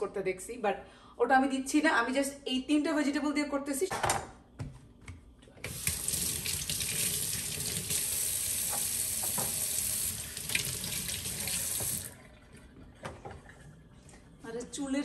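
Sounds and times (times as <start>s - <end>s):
faucet running into sink: 5.7s - 13.7s.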